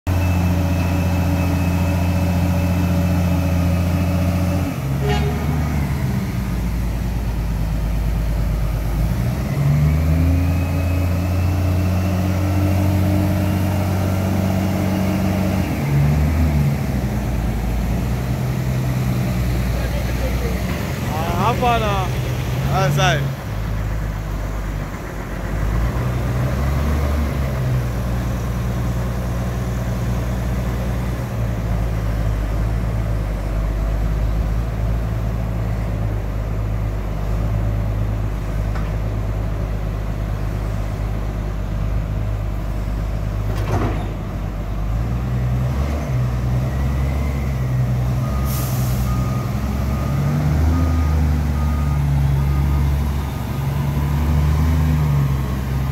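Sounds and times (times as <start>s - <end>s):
diesel engine under load: 0.1s - 55.9s
reversing alarm beeping: 46.7s - 55.4s.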